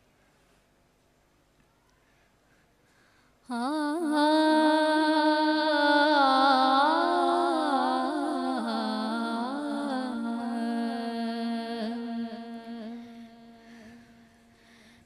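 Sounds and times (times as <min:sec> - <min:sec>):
woman reciting in song: 0:03.5 - 0:14.5.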